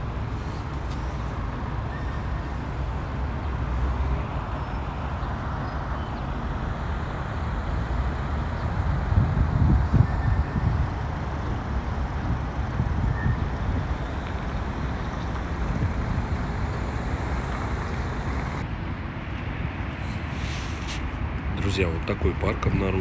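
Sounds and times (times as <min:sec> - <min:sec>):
road traffic noise: 0:00.0 - 0:23.0
wind buffeting microphone: 0:07.0 - 0:23.0.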